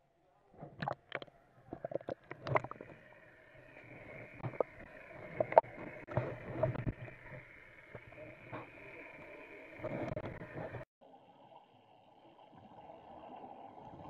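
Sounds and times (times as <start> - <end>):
muffled underwater hiss: 0.6 - 14.0
exhaled air bubbling: 0.7 - 10.6.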